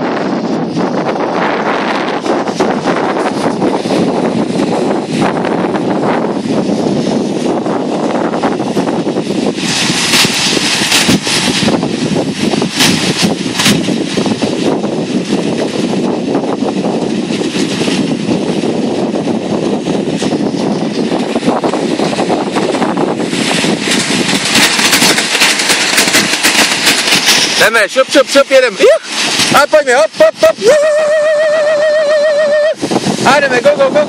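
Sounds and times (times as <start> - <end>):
sled runners scraping over snow: 0.0 - 34.0
knocks and rattles: 19.8 - 28.4.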